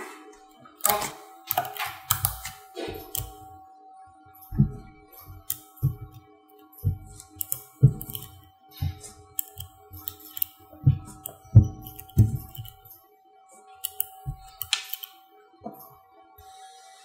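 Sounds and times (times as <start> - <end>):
magnet balls clicking: 5.3 - 6.2, 6.8 - 12.9, 13.8 - 15.2
fingers knocking on balls: 6.8 - 12.8.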